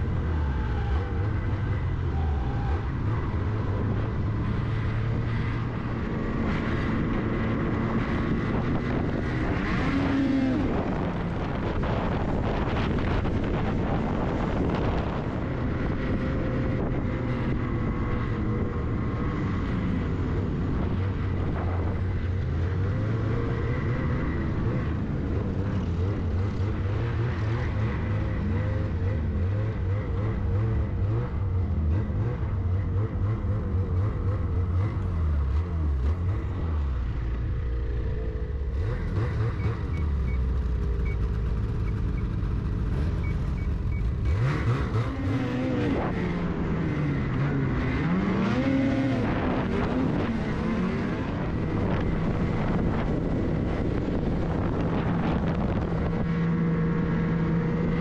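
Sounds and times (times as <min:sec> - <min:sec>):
snowmobile engine revving: 0:44.2 - 0:58.0.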